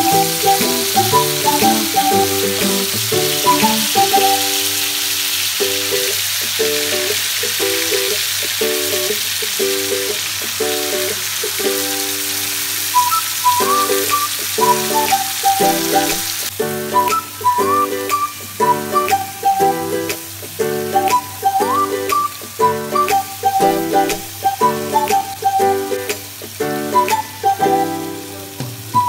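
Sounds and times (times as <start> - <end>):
background music: 0.0 - 4.8, 13.0 - 29.0
meat sizzling in oil: 0.0 - 16.8.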